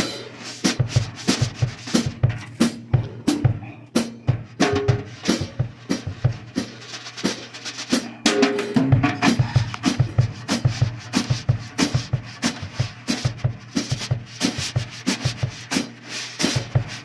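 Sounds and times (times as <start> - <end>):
drum kit playing: 0.0 - 17.0.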